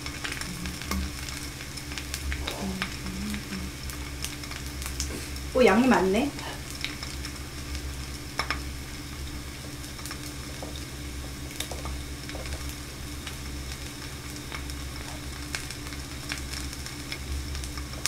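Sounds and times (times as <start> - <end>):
frying sizzle: 0.0 - 18.0.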